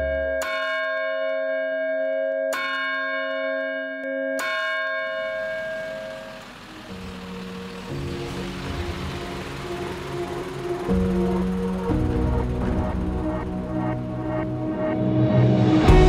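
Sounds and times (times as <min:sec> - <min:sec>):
large bell tolling: 0:05.0 - 0:15.0
music with held tones: 0:05.1 - 0:16.0.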